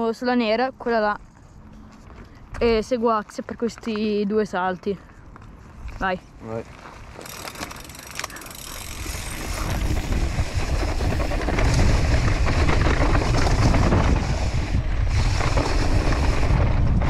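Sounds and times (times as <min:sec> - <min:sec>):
bike tyres rattling on dirt: 0:06.7 - 0:17.0
wind rushing over microphone: 0:08.9 - 0:17.0.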